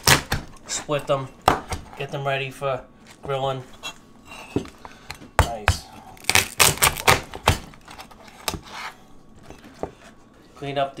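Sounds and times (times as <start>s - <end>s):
knife chopping shells on wooden board: 1.4s - 1.9s, 4.6s - 6.0s, 6.6s - 7.8s.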